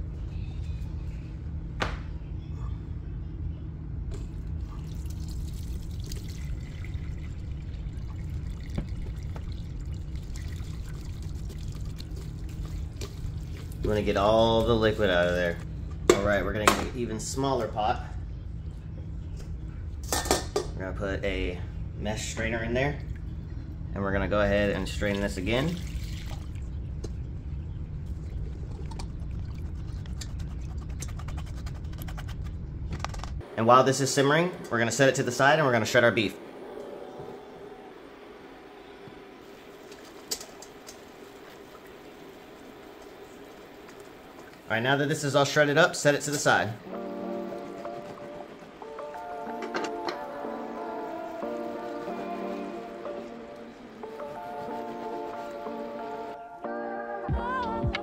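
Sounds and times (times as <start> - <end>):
steady low rumble: 0.0 - 48.8
broth pouring and trickling: 4.6 - 13.8, 25.0 - 26.6.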